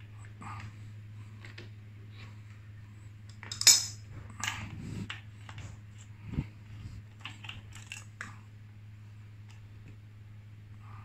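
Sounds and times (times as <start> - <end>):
steady low hum: 0.0 - 11.0
metal tools clinking on cassette: 3.4 - 4.0.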